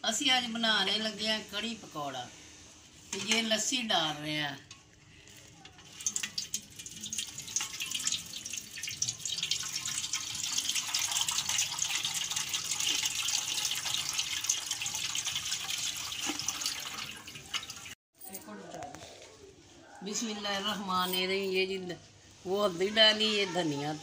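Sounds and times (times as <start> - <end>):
liquid pouring through strainer: 5.2 - 18.0.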